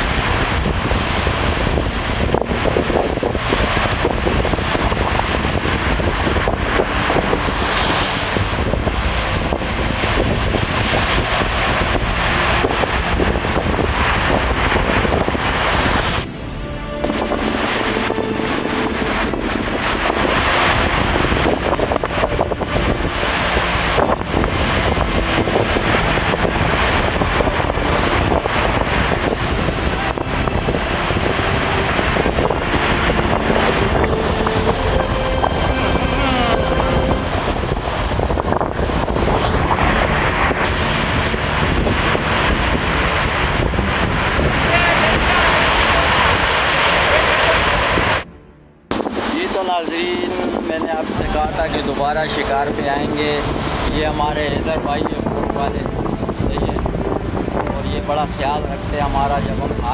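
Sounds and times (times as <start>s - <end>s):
sea surf breaking: 0.0s - 59.9s
wind buffeting microphone: 0.0s - 59.9s.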